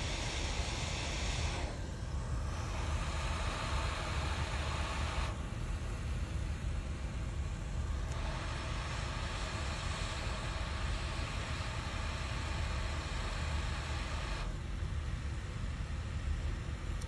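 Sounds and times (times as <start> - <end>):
hot air blower hissing: 0.0 - 5.6, 7.2 - 14.5
low fan rumble: 0.0 - 17.0.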